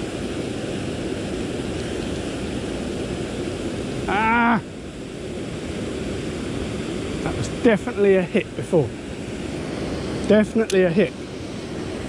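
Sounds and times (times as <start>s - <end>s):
river water rushing: 0.0s - 12.0s
man exclaiming: 4.0s - 4.7s.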